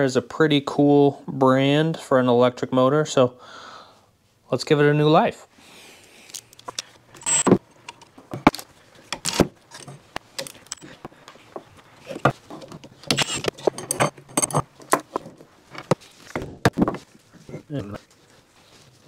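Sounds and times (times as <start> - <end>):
metal tools and bolts clinking: 6.6 - 16.0.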